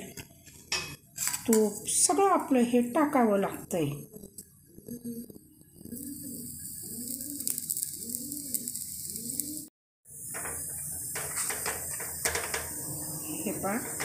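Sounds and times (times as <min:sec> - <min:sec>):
spoon scraping: 0:00.3 - 0:01.7
bird cooing: 0:04.1 - 0:09.7
oil sizzling on a hot pan: 0:05.9 - 0:14.0.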